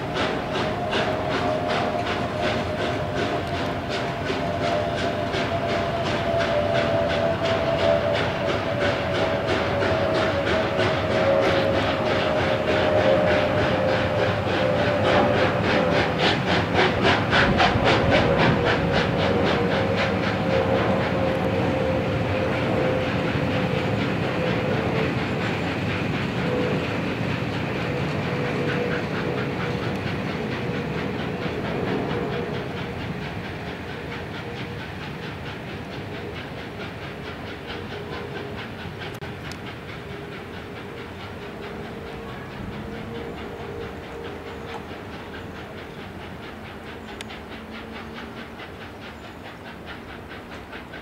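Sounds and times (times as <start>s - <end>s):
rumble of train coaches: 0.0s - 51.0s
steam locomotive exhaust beating: 0.0s - 51.0s.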